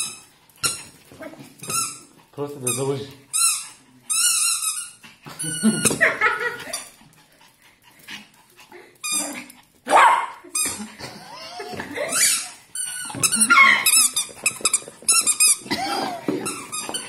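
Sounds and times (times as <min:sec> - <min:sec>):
rubber squeak toy squeaks: 0:01.6 - 0:06.0
dog barking and yipping: 0:09.9 - 0:10.4.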